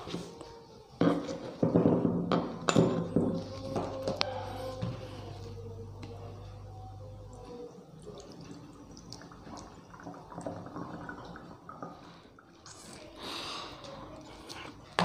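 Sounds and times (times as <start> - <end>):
juice dripping: 5.4 - 15.0
wet squishing: 7.3 - 13.2.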